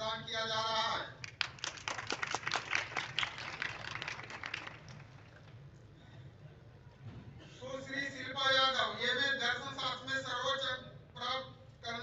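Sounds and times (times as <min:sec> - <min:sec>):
man speaking over loudspeaker: 0:00.0 - 0:01.2, 0:07.6 - 0:12.0
crowd clapping: 0:01.2 - 0:05.6.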